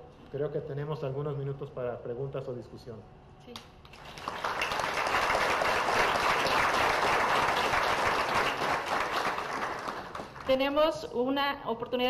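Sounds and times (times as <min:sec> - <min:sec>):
audience applauding: 0:03.9 - 0:10.6.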